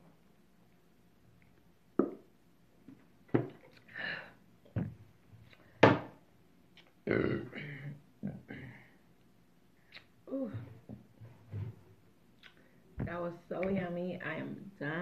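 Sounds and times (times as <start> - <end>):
woman burping: 7.0 - 8.8.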